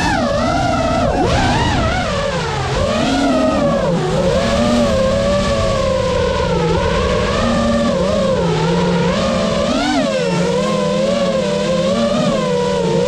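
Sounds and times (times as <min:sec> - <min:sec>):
drone motors whining: 0:00.0 - 0:13.0
rushing low noise: 0:02.0 - 0:09.7.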